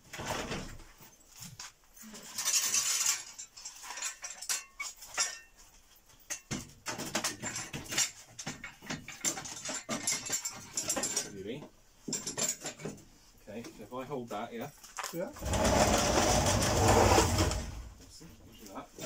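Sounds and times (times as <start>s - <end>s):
metal clinks and knocks: 0.4s - 13.3s
metal scrape: 15.4s - 18.0s.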